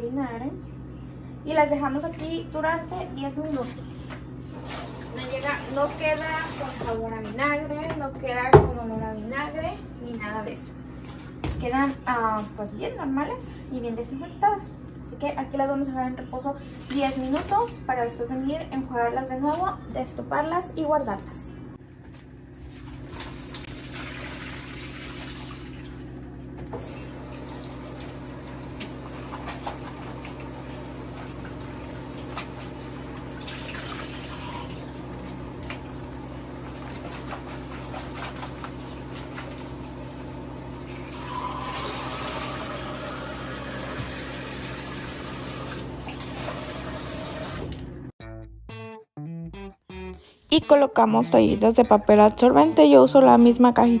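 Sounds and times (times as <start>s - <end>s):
tap water running into bowl: 26.7s - 47.7s.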